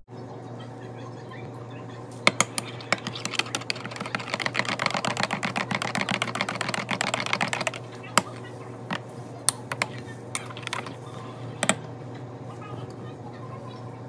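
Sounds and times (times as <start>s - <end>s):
typing on computer keyboard: 2.3s - 9.0s, 9.6s - 11.0s.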